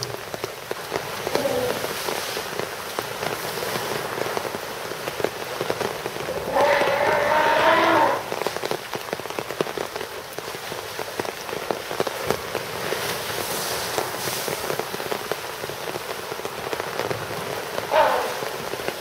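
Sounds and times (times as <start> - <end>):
elephant splashing in water: 0.0 - 8.7
rain pattering: 0.0 - 19.0.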